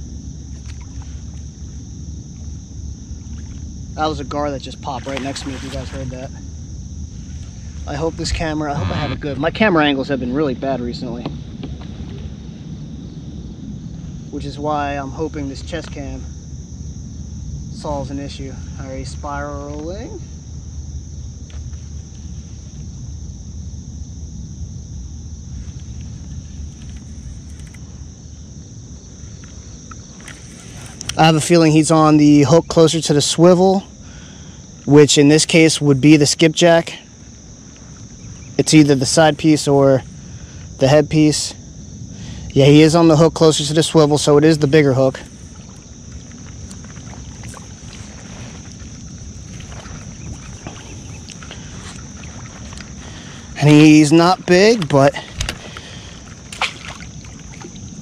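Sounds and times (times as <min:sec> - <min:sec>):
wind buffeting microphone: 0:00.0 - 0:32.7, 0:37.0 - 0:58.0
insect chorus chirring: 0:00.0 - 0:58.0
water washing against a kayak: 0:04.2 - 0:06.4, 0:30.1 - 0:31.9, 0:43.6 - 0:58.0
low rumble: 0:06.4 - 0:10.6
faint ticks: 0:26.7 - 0:27.8.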